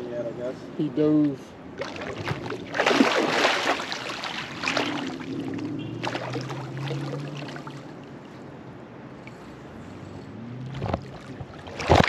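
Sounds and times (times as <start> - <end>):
fish thrashing and splashing: 1.8 - 8.1, 10.7 - 12.0.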